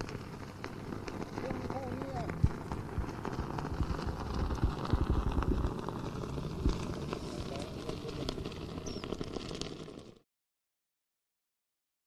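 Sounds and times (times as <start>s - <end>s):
wind buffeting microphone: 0.0s - 9.6s
faint voices: 1.4s - 2.7s, 6.8s - 8.5s.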